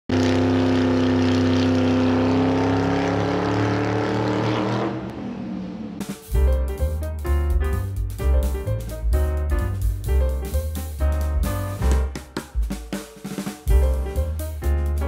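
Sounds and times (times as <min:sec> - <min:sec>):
racing car engine running: 0:00.1 - 0:06.4.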